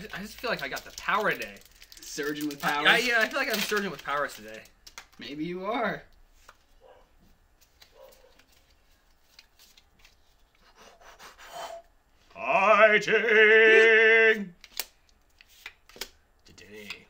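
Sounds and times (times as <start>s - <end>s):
trading cards being handled: 0.0s - 5.3s, 6.1s - 10.7s, 14.6s - 17.0s
person singing drawn-out call: 12.4s - 14.5s.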